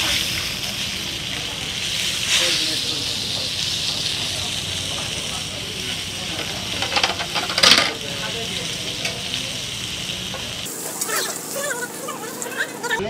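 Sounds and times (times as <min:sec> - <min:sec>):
fish sizzling in hot oil: 0:00.0 - 0:13.0
metal tongs scraping and clacking: 0:06.4 - 0:08.0.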